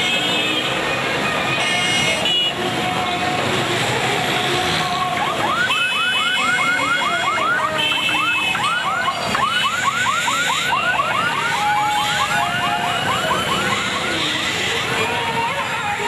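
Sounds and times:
crowded street with motorbikes: 0.0 - 16.0
horn honks: 1.4 - 2.6
electronic siren yelping: 5.1 - 14.4.

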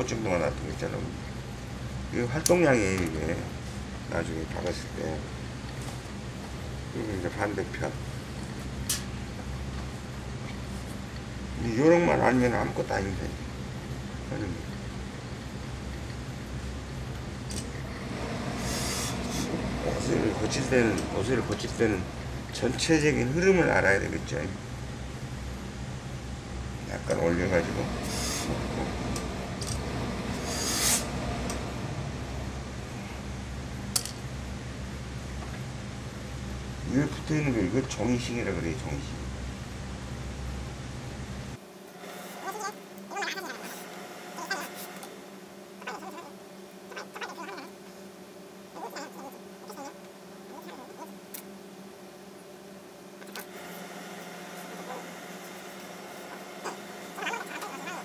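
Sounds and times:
low workshop hum: 0.0 - 58.0
steam iron hissing: 18.0 - 22.7, 27.6 - 32.1.

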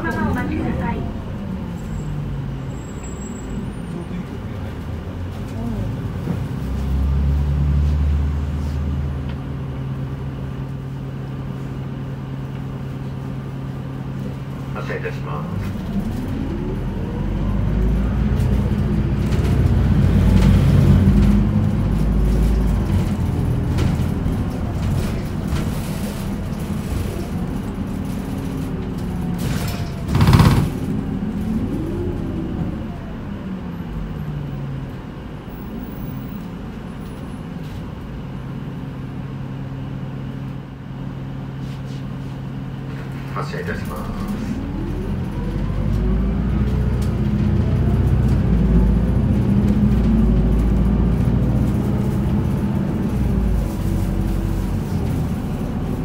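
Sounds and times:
bus diesel engine running: 0.0 - 56.0
loud burst of noise: 29.6 - 31.0.

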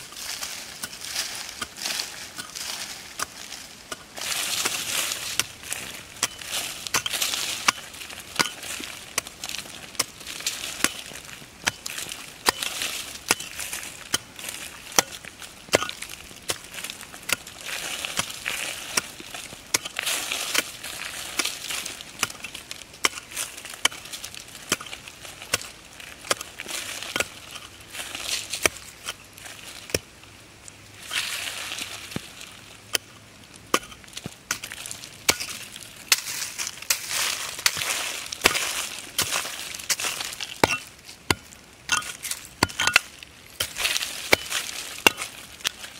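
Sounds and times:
dirt crumbling and scraping: 0.0 - 45.9
hand pick chopping into soil: 0.8 - 14.3, 28.4 - 29.2, 43.6 - 45.8.

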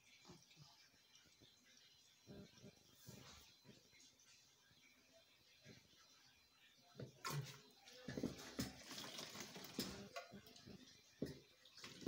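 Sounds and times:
knocks and clatter on tiled floor: 7.0 - 12.0.

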